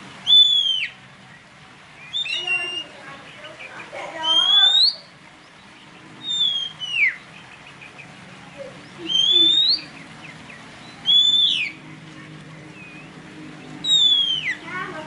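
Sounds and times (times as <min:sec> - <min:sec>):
songbird whistling clear notes: 0:00.2 - 0:01.0, 0:02.0 - 0:03.0, 0:04.2 - 0:05.1, 0:06.2 - 0:07.3, 0:08.9 - 0:10.1, 0:10.8 - 0:11.8, 0:13.8 - 0:14.7.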